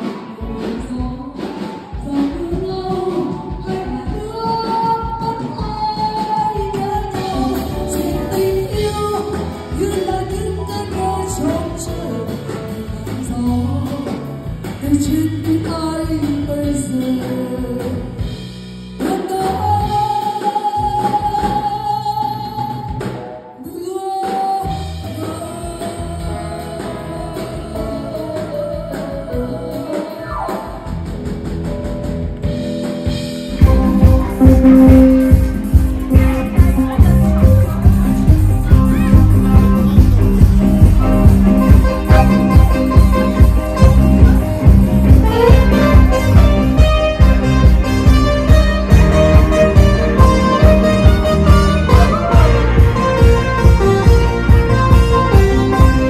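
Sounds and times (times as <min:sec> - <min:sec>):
woman singing into microphone: 0:00.0 - 0:18.4, 0:19.0 - 0:30.9
heavy drum beats: 0:00.0 - 0:23.4, 0:24.2 - 0:56.0
live band playing: 0:00.0 - 0:56.0.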